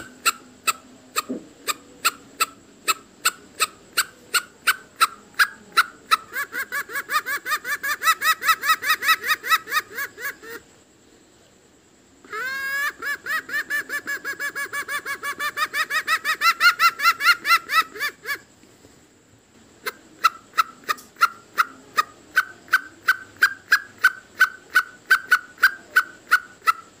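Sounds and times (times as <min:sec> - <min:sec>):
fast chatter of clucks: 0:00.0 - 0:10.6, 0:12.3 - 0:18.5, 0:19.8 - 0:27.0
slow sharp clucks: 0:00.0 - 0:10.8, 0:19.5 - 0:27.0.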